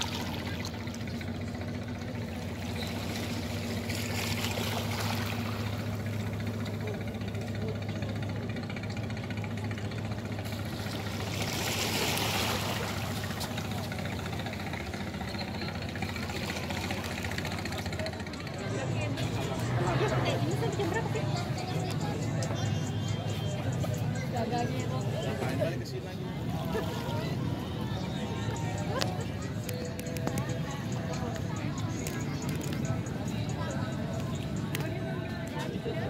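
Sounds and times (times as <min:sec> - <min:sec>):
low engine drone: 0:00.0 - 0:36.0
water washing on rocky shore: 0:10.8 - 0:13.6.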